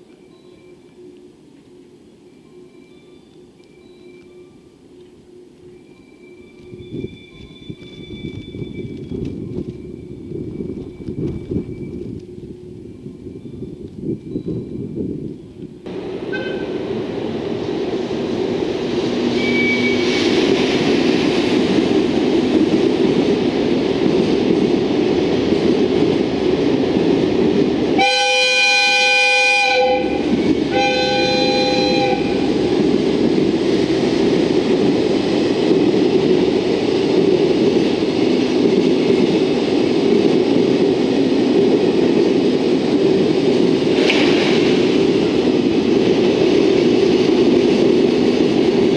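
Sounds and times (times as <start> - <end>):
train wheels rumbling on rail: 0.0 - 48.9
locomotive air horn: 16.3 - 16.8, 28.0 - 32.6.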